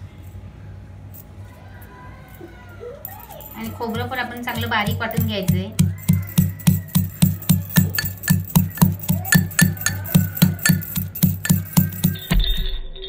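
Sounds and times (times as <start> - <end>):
pestle pounding in steel mortar: 3.5 - 12.4.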